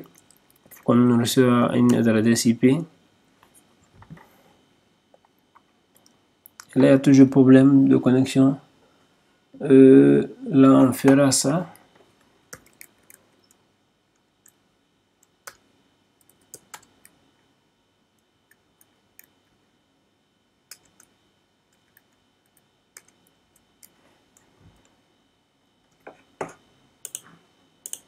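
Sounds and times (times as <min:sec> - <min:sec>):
keyboard keystrokes typing: 0:12.5 - 0:13.6, 0:16.2 - 0:17.2, 0:20.7 - 0:21.1, 0:27.0 - 0:27.2.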